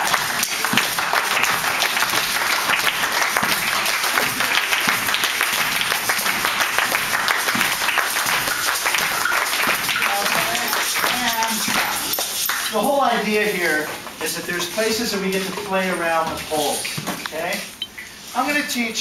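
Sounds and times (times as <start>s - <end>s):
people clapping: 0.0s - 13.1s.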